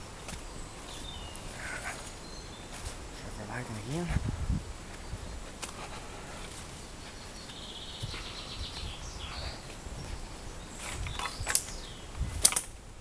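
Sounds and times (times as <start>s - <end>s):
footsteps through undergrowth: 0.0s - 12.3s
small bird chirping and trilling: 7.0s - 12.2s
twigs cracking: 10.7s - 12.8s.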